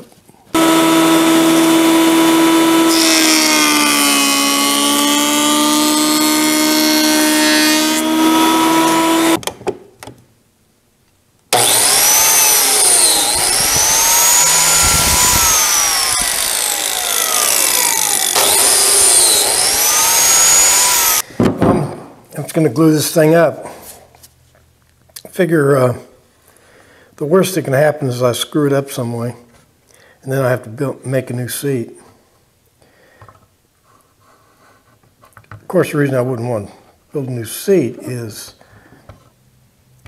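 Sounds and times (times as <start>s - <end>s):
jointer planing wood: 0.6s - 9.4s, 11.5s - 21.2s
biscuit joiner cutting slots: 0.6s - 9.5s, 11.5s - 21.2s.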